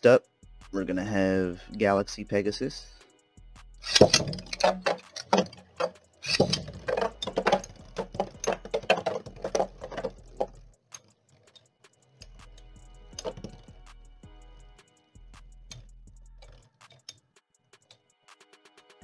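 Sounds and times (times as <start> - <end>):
spinning top launch: 3.8 - 11.1
spinning tops clattering: 3.8 - 13.7.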